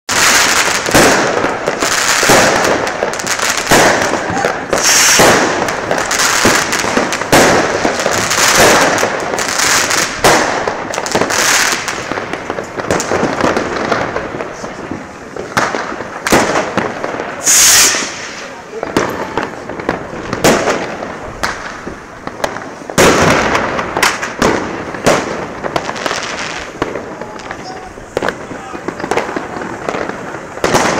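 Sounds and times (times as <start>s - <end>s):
fireworks bangs and crackling: 0.1s - 30.9s.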